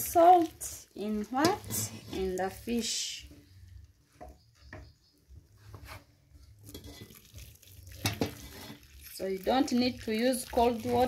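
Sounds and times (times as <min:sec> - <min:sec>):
water trickling into basin: 0:06.6 - 0:11.0.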